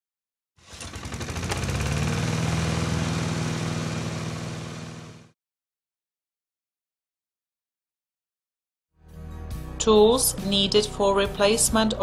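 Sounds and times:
engine running with pulsing: 0.7 - 5.3.

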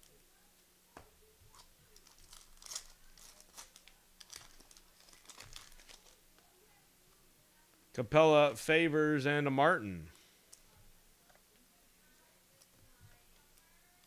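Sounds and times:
plastic wrapper crinkling and tearing: 1.5 - 6.2.

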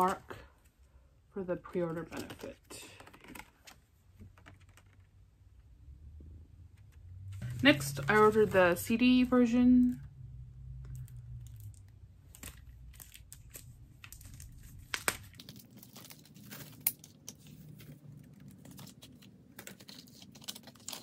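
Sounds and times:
plastic wrapping crinkling and tearing: 10.9 - 21.0.

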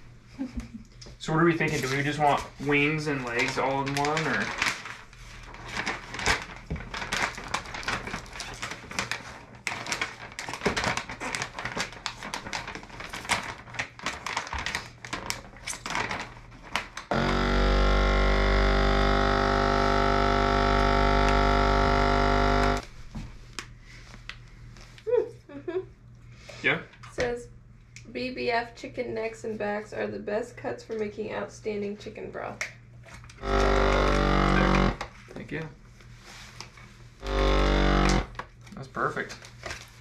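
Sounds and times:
plastic bags crinkling: 1.8 - 17.1
vacuum sealer pump humming: 17.1 - 23.0, 33.3 - 35.1, 37.2 - 38.4.

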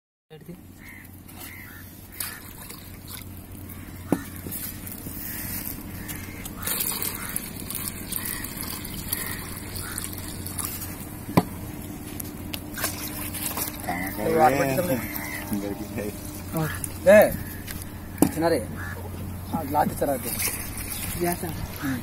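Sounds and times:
liquid pouring into a bowl: 6.6 - 11.2.

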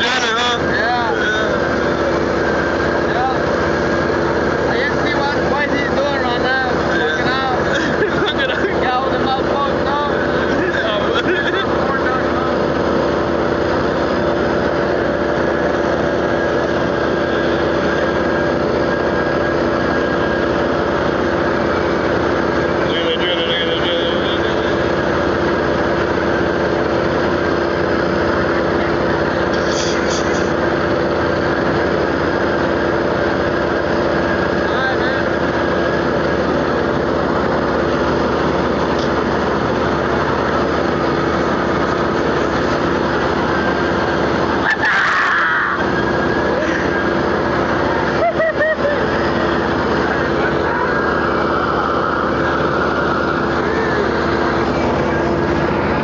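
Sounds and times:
drilling rig machinery drone: 0.0 - 56.0.

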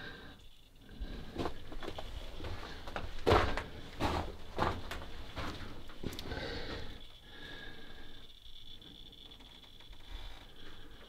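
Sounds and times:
footsteps crunching on gravel: 1.4 - 5.8.

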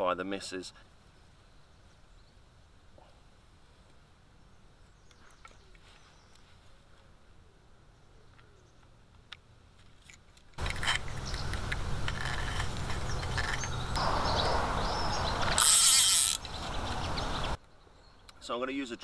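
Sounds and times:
low rumble and rustling: 10.3 - 15.6
fishing reel rattling clicks: 15.6 - 16.4.

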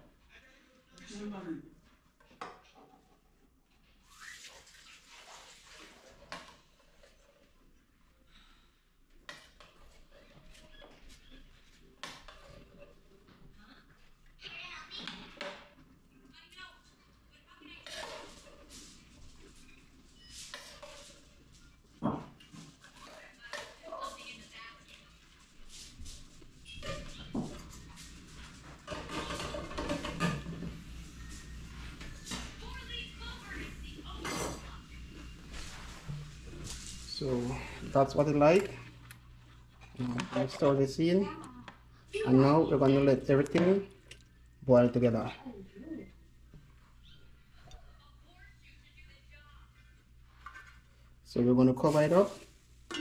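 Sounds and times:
water splashing and sloshing: 4.0 - 7.0
cookware knocking and scraping: 22.0 - 22.5, 28.7 - 30.8.

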